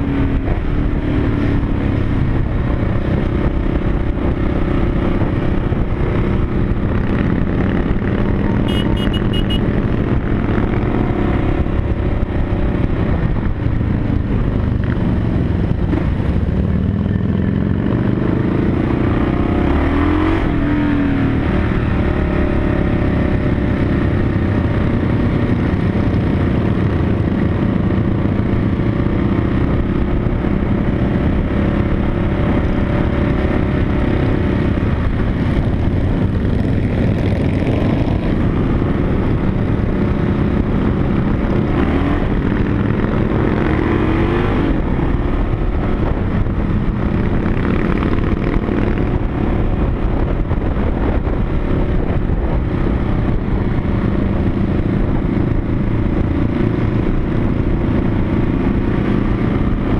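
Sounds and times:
group of motorcycles riding: 0.0 - 59.9
motorcycle engine running steadily: 0.0 - 59.9.

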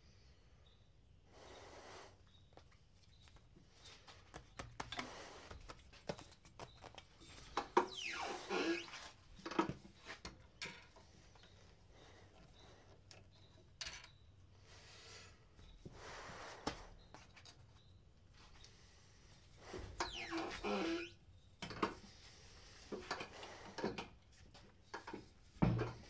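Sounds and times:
scrape with falling squeak: 7.8 - 9.2, 19.8 - 21.2.

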